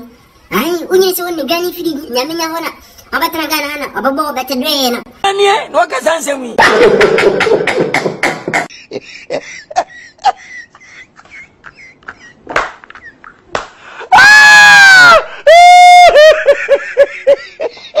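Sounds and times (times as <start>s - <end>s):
man shrieking with laughter: 14.1s - 16.6s.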